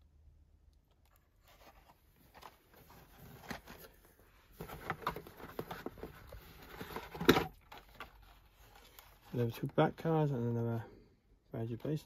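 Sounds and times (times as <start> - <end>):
plastic and card clicks and rustles: 0.7 - 10.1.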